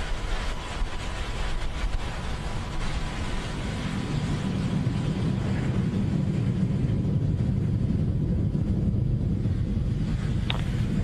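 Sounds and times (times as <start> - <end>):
rocket engines rumbling: 0.0 - 11.0.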